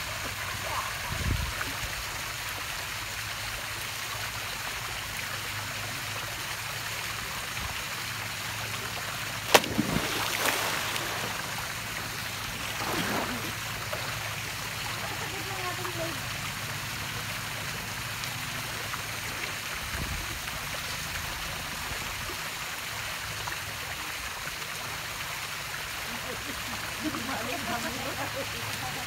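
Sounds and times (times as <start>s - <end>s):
seawater lapping and splashing: 8.7s - 16.5s.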